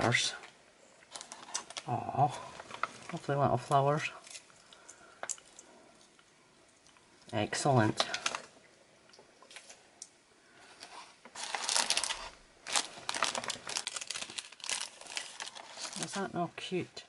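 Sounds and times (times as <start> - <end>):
cellophane crinkling: 1.0 - 6.3, 7.8 - 8.6, 10.7 - 16.7.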